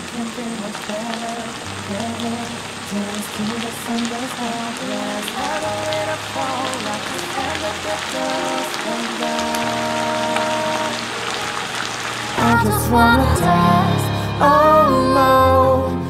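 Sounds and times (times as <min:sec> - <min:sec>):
background music: 0:00.0 - 0:16.0.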